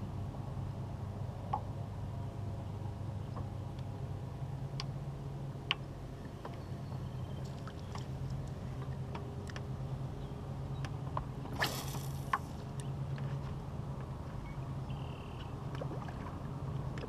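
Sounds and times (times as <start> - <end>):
steady low hum: 0.0 - 17.0
fishing rod whoosh: 11.5 - 12.6.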